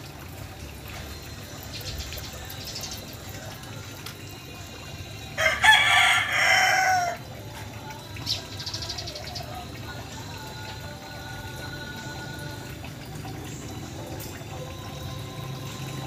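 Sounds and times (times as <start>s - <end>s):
faint yard background: 0.0s - 16.0s
rooster crowing: 5.4s - 7.3s.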